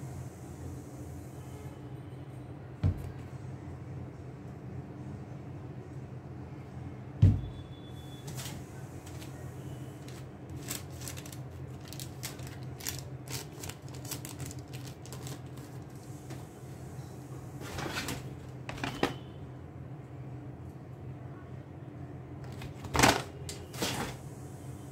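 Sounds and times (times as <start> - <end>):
low steady hum: 0.0 - 24.9
shoe thumping on table: 7.2 - 7.5
paper crinkling and rustling: 10.0 - 16.2, 17.6 - 19.2, 22.5 - 24.2.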